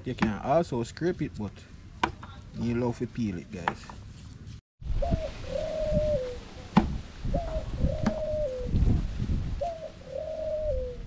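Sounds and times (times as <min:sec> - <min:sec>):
dove cooing: 0:05.0 - 0:06.7, 0:07.3 - 0:08.8, 0:09.6 - 0:11.0.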